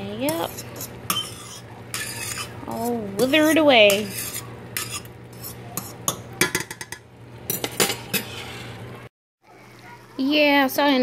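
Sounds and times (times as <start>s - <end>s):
metal fork scraping steel pan: 0.2s - 8.8s.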